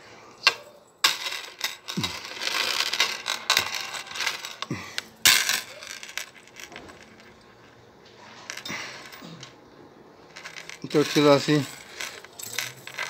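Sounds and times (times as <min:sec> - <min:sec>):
metal chain clinking and jangling: 0:00.4 - 0:07.4, 0:10.4 - 0:13.0.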